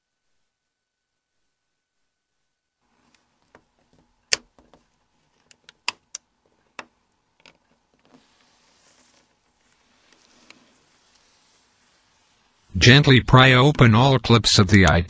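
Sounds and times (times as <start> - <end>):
faint hiss: 8.1 - 12.8.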